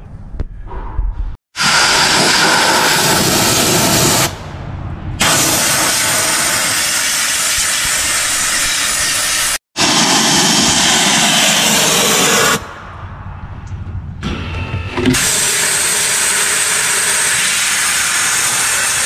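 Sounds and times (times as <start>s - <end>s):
spray gun hissing: 5.2s - 12.7s, 15.2s - 19.0s.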